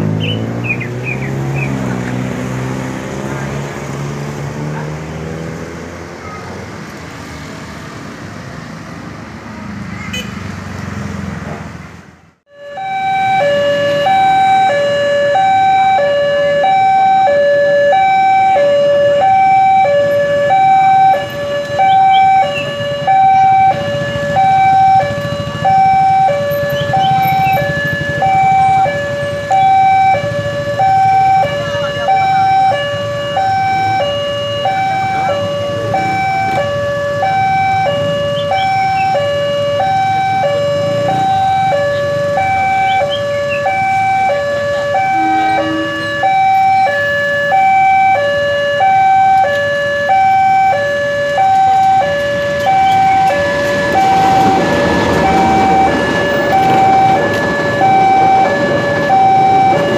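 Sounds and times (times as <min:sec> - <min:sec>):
road traffic rumble: 0:00.0 - 0:59.9
two-tone crossing alarm: 0:12.5 - 0:59.9.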